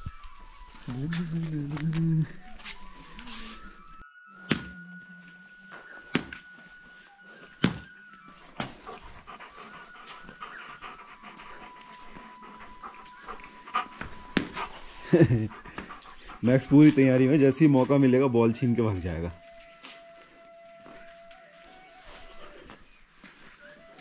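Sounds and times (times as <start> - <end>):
dog panting: 8.4 - 17.5.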